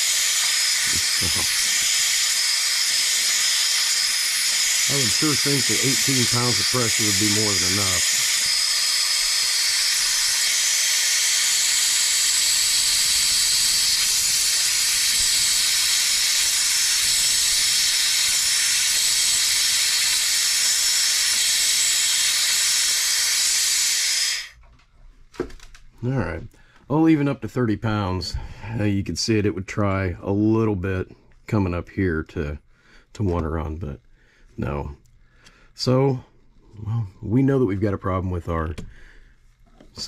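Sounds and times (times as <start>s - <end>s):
compressed air hissing: 0.0s - 24.6s.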